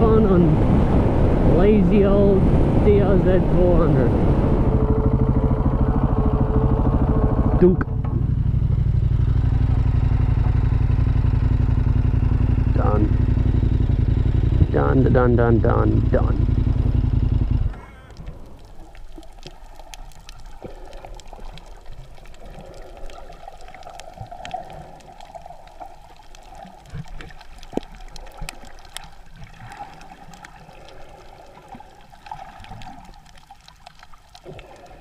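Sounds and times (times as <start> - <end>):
muffled underwater wash: 0.0 - 35.0
small clicks and crackles: 17.4 - 35.0.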